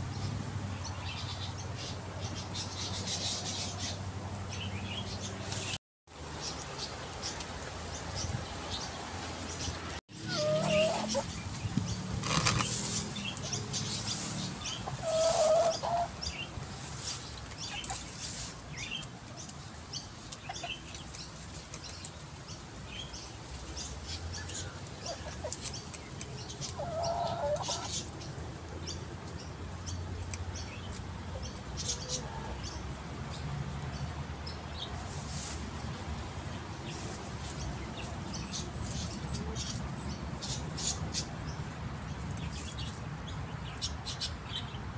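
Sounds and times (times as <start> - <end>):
hens clucking: 10.2 - 11.6, 12.2 - 18.3, 24.5 - 28.1
scratchy rustles and clicks: 11.5 - 14.5.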